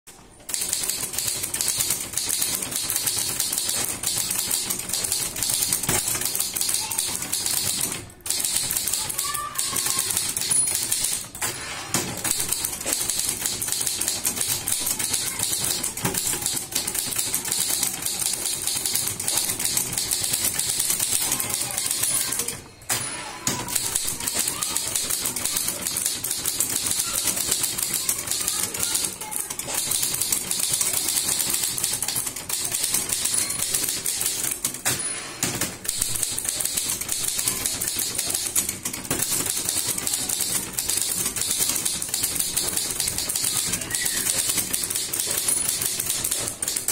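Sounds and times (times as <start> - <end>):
manual typewriter typing fast: 0.1 - 22.6, 23.4 - 46.9.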